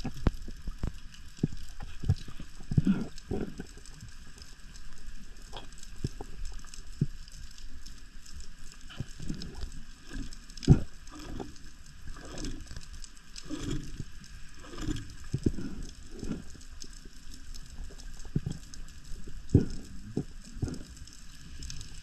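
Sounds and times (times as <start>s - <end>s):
underwater water whooshes: 8.8s - 22.0s.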